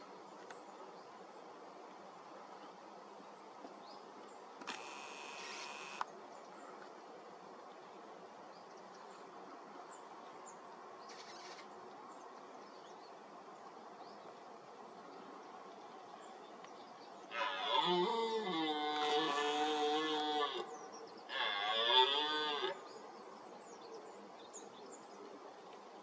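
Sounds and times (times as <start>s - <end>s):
open-air background hiss: 0.0s - 26.0s
buzz: 4.6s - 6.0s
faint high bird chirps: 11.1s - 11.7s.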